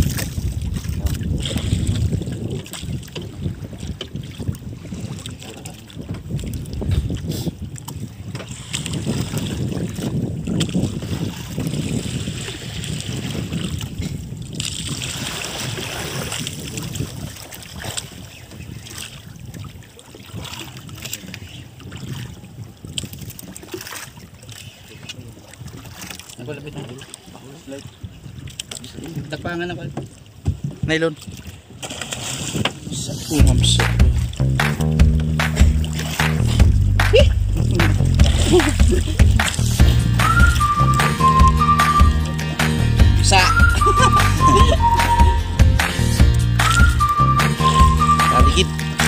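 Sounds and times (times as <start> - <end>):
wind buffeting microphone: 0.0 - 48.6
water against boat hull: 0.0 - 49.0.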